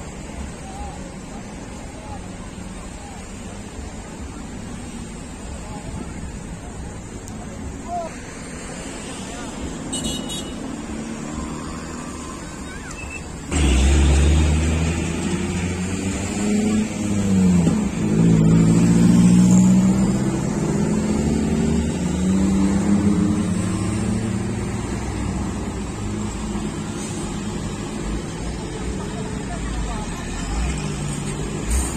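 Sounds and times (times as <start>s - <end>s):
forklift engine revving: 13.3s - 28.4s.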